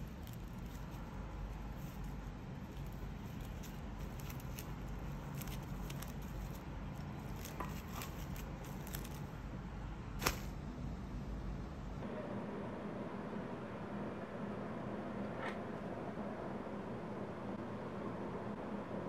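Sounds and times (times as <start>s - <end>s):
plastic cling wrap crinkling: 0.0s - 9.3s
low steady hum: 0.0s - 19.0s.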